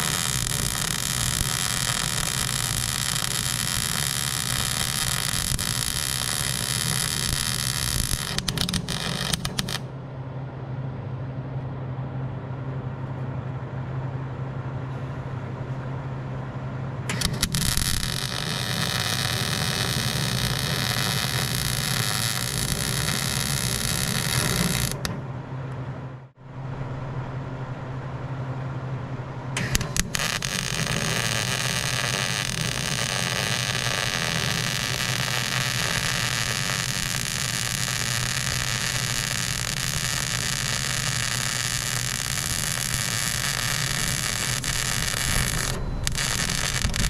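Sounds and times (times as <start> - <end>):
electric arc welding hiss: 0.0 - 9.8, 17.1 - 25.1, 29.6 - 47.0
welding arc crackles: 0.0 - 9.9, 17.1 - 25.2, 29.6 - 47.0
low hum: 0.0 - 47.0.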